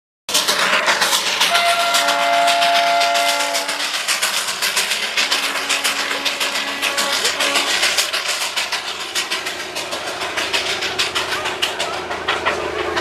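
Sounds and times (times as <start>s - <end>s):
steam locomotive chuffing: 0.3s - 13.0s
steam whistle chord: 1.5s - 4.0s.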